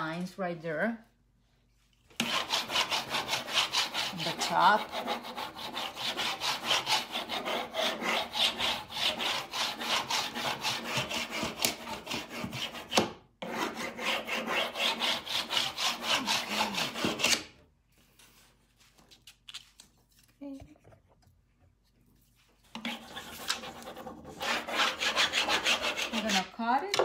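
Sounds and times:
hand tool rubbing on wood: 2.2 - 17.4, 22.8 - 26.6.

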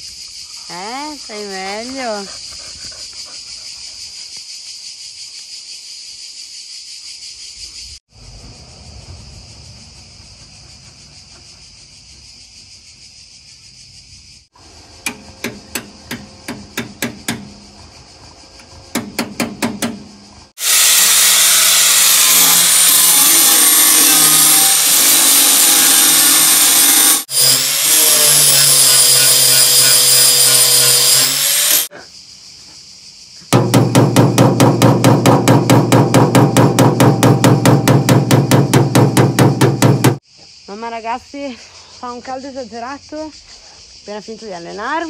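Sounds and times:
insect chorus: 0.0 - 20.7, 27.3 - 45.0
hammer blows on sheet metal: 15.0 - 17.6, 18.9 - 20.2, 33.5 - 40.2
power tool whistling: 20.5 - 31.9.

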